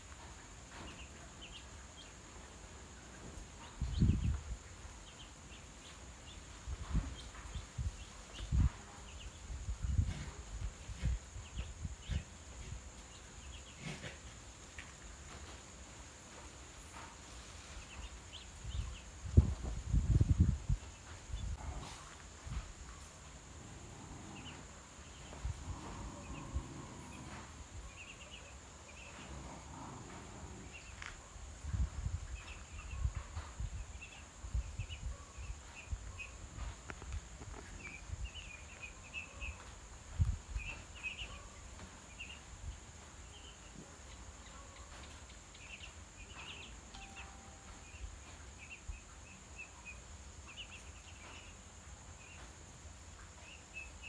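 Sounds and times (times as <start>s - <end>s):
ducklings peeping: 0.2s - 15.5s, 23.8s - 31.2s, 32.3s - 36.7s, 37.6s - 42.5s, 43.2s - 51.6s.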